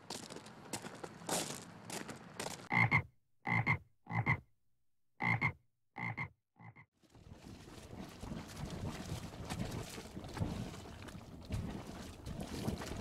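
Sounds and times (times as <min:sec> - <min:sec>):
frog croaking: 0:02.7 - 0:04.4, 0:05.2 - 0:06.9.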